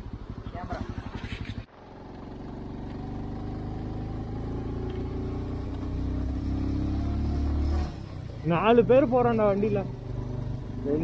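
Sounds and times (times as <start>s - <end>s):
motorcycle engine running: 0.0s - 11.0s.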